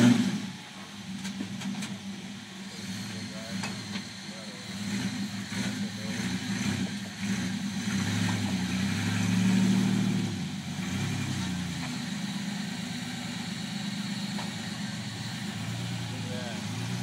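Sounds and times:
engine revving under load: 0:00.0 - 0:17.0.

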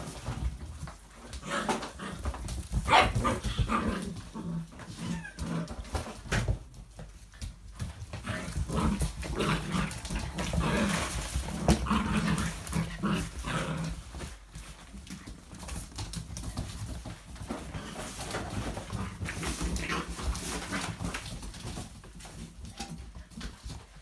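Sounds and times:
paws scrabbling on wooden floor: 0:00.0 - 0:24.0
puppies growling and whimpering: 0:03.2 - 0:06.3, 0:08.1 - 0:14.3.

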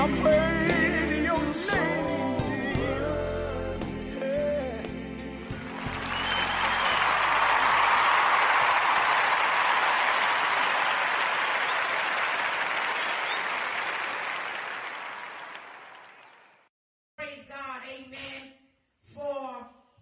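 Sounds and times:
audience applause: 0:05.5 - 0:16.6.

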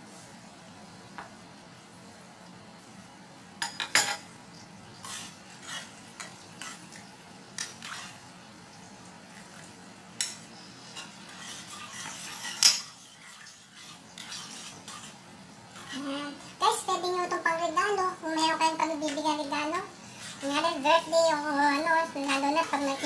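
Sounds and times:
utensils scraping a frying pan: 0:04.9 - 0:08.3, 0:10.2 - 0:16.1.

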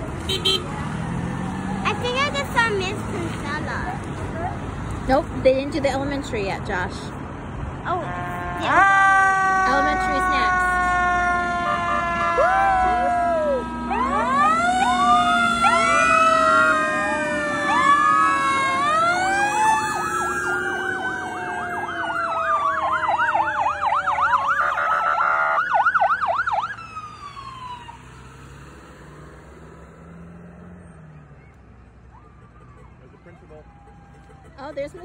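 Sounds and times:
wailing sirens: 0:08.0 - 0:35.0
siren fast yelp: 0:08.5 - 0:28.0.

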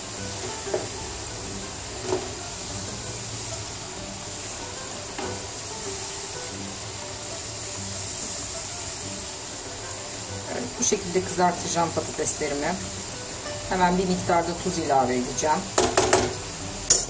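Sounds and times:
potatoes sizzling in hot oil: 0:00.0 - 0:17.0
metal spoon knocking on pan: 0:15.7 - 0:17.0.

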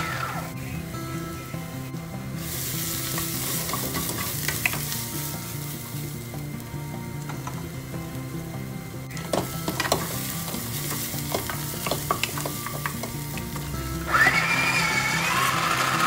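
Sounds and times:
food chopper motor whine: 0:00.0 - 0:00.6, 0:13.8 - 0:16.0
onions sizzling in a saucepan: 0:00.0 - 0:16.0
wooden spatula scraping: 0:09.2 - 0:16.0.

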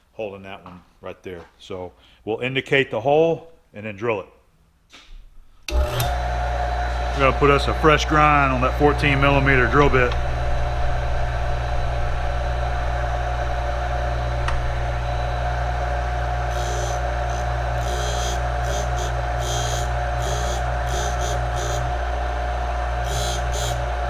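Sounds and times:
bench grinder motor humming: 0:05.7 - 0:24.0
high-pitched grinding of drill bit: 0:16.4 - 0:22.0, 0:22.9 - 0:24.0.

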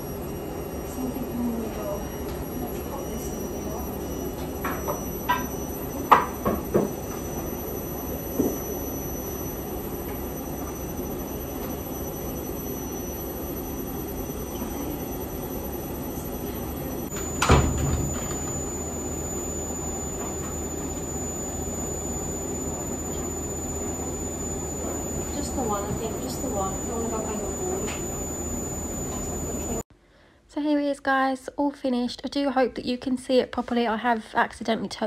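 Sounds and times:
tumble dryer running: 0:00.9 - 0:29.8
loud thump: 0:17.4 - 0:18.5.

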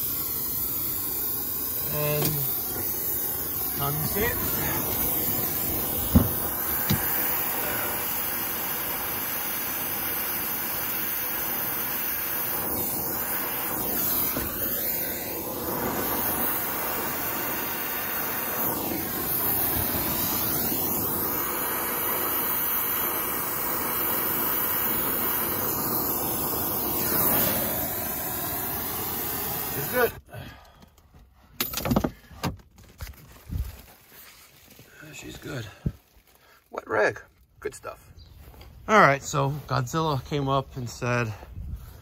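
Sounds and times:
torch flame hissing: 0:00.0 - 0:30.4, 0:34.2 - 0:36.1.

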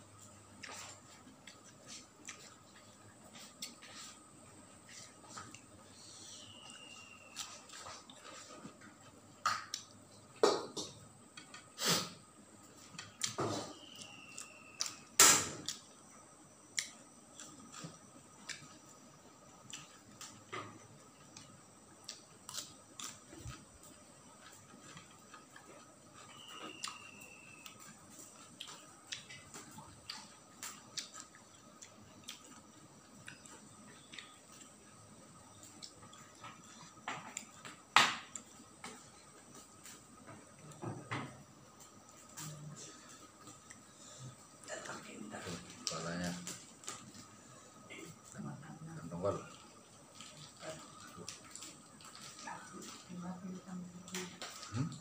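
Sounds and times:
faint thin whistle: 0:05.8 - 0:08.0, 0:13.3 - 0:15.1, 0:26.2 - 0:27.9
chewing and lip smacking: 0:21.4 - 0:38.6, 0:49.5 - 0:53.0.

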